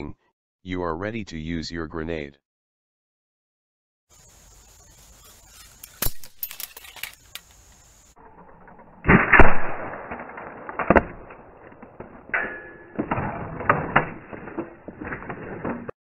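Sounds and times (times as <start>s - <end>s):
loud sharp crack: 9.0s - 15.9s
clatter: 9.9s - 16.0s.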